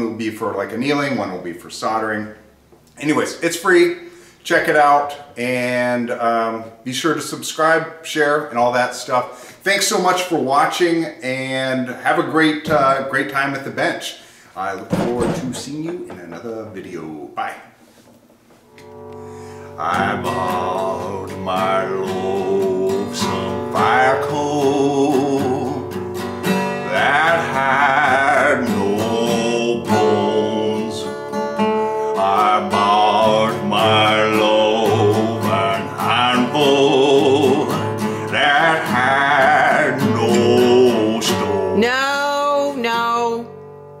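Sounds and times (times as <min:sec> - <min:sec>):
acoustic guitar strumming: 0:14.7 - 0:17.1, 0:17.8 - 0:44.0
man singing: 0:19.8 - 0:25.9, 0:26.8 - 0:31.2, 0:32.1 - 0:41.9.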